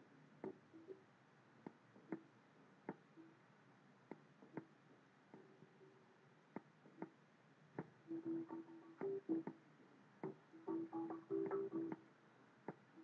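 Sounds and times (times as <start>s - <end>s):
faint music: 0.0s - 13.0s
faint sharp clicks: 11.3s - 13.0s.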